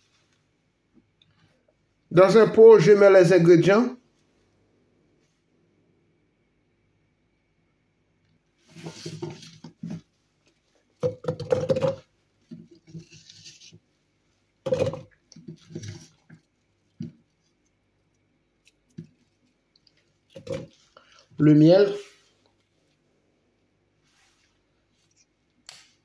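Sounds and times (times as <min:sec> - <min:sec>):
fruit clattering into plastic beaker: 0:11.0 - 0:13.0, 0:14.6 - 0:16.2, 0:20.3 - 0:20.8.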